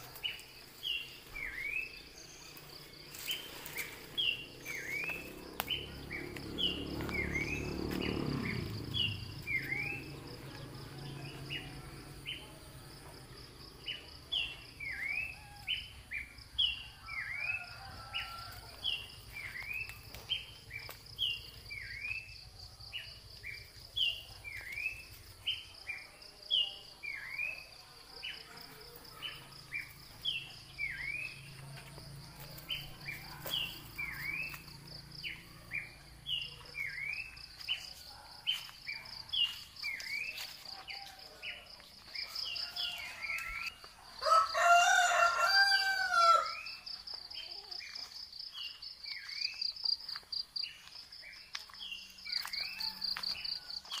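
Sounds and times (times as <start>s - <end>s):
bird chirping: 0.0s - 12.6s, 32.3s - 54.0s
insects trilling: 0.0s - 54.0s
rooster crowing: 16.9s - 19.1s, 42.2s - 46.8s.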